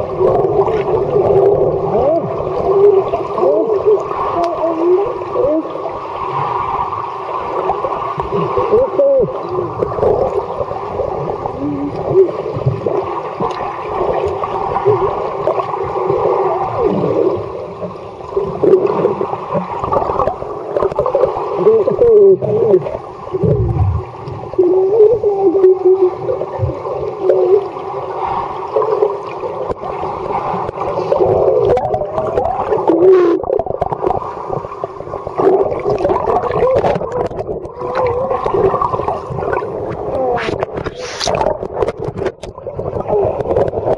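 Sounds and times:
underwater gurgling and bubbling: 0.0 - 43.9.

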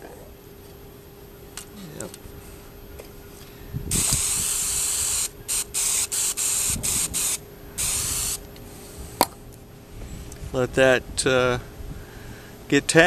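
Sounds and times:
aerosol can spraying: 3.9 - 8.5.

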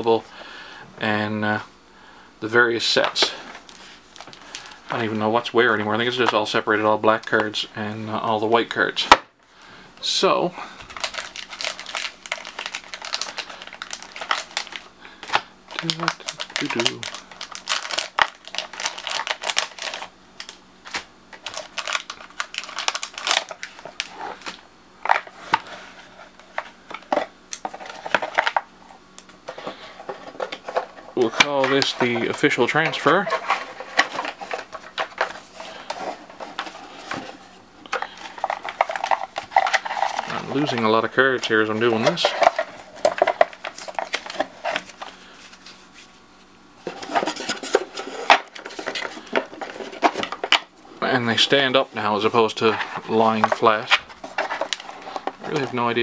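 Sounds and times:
cards rustling and sliding: 29.4 - 56.0.

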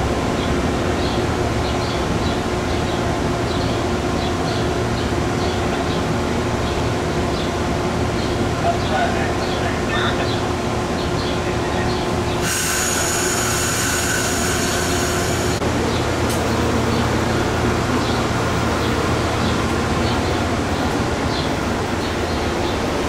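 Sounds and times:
train wheels rumbling on rails: 0.0 - 23.0
high train squeal: 11.6 - 15.6.

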